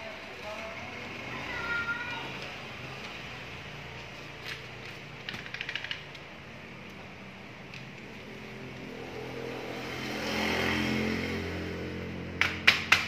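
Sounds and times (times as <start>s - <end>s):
vehicle engine passing by: 8.2s - 12.4s.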